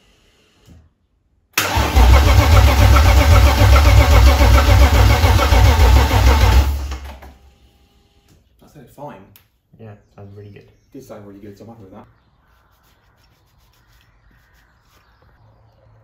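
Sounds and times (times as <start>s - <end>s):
starter motor cranking engine: 1.6s - 7.4s.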